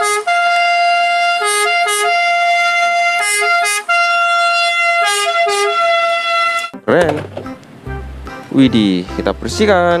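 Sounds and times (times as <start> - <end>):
ambulance siren: 0.0 - 6.8.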